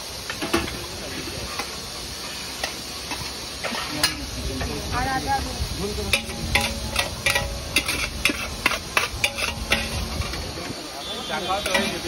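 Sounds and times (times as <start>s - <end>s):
steady background hiss: 0.0s - 12.0s
ladle clinking against pots: 6.1s - 10.5s, 11.6s - 12.0s.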